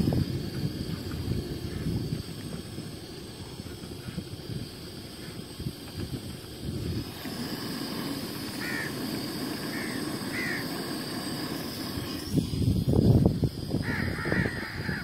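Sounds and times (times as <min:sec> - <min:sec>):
crow cawing: 0:08.6 - 0:09.0, 0:09.7 - 0:10.7, 0:13.8 - 0:15.0.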